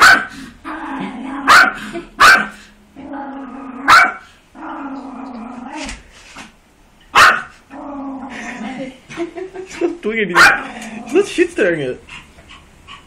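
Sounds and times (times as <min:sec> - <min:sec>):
dog barking: 0:00.0 - 0:00.3, 0:01.5 - 0:02.6, 0:03.9 - 0:04.3, 0:07.1 - 0:07.6, 0:10.4 - 0:10.7
dog growling: 0:00.3 - 0:05.9, 0:07.7 - 0:08.9, 0:10.4 - 0:11.4.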